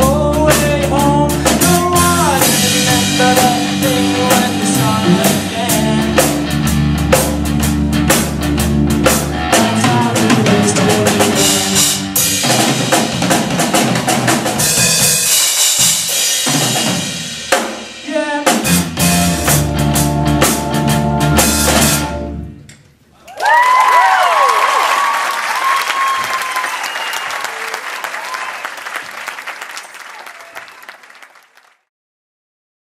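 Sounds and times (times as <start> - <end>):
live rock band playing: 0.0 - 22.6
crowd applause: 23.2 - 31.9
crowd whistling: 23.3 - 31.7.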